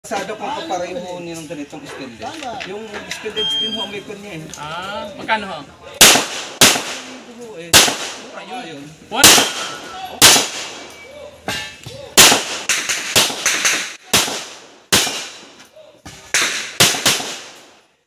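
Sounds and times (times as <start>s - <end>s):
pistol shots with echo: 6.0s - 8.4s, 9.2s - 10.9s, 12.2s - 15.6s, 16.3s - 17.8s.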